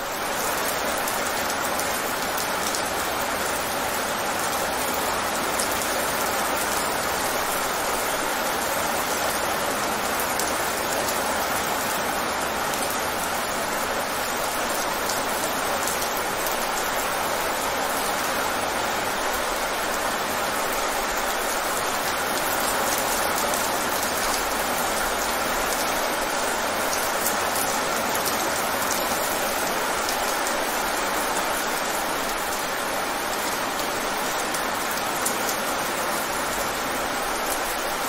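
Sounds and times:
rain on wet pavement: 0:00.0 - 0:38.0.

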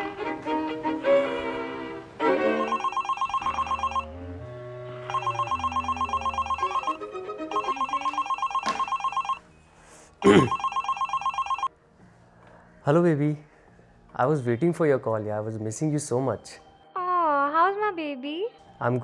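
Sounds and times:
soft background music: 0:00.0 - 0:19.0
mobile phone trilling ringtone: 0:02.5 - 0:04.3, 0:05.0 - 0:09.5, 0:10.2 - 0:11.7.

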